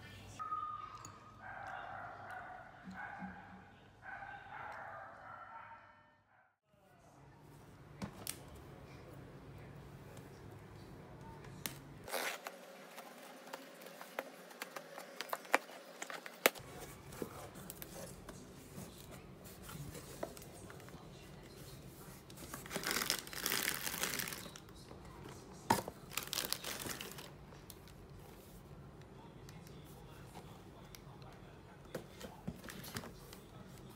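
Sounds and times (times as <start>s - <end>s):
bubble wrap crinkling: 22.3s - 24.8s, 25.8s - 28.0s.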